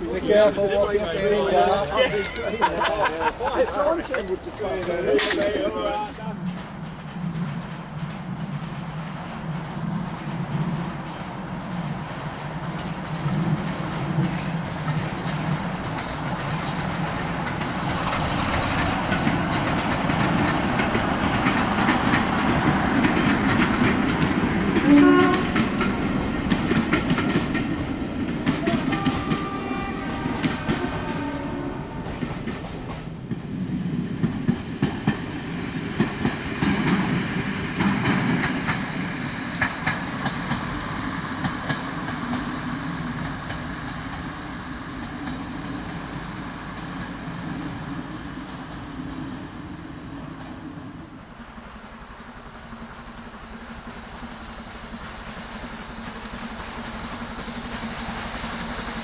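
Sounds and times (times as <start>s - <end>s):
diesel locomotive engine under load: 0.0s - 59.0s
diesel railcar engine running: 0.0s - 59.0s
train wheels clattering on rails: 0.0s - 59.0s
train horn note: 24.8s - 26.2s, 28.4s - 32.4s.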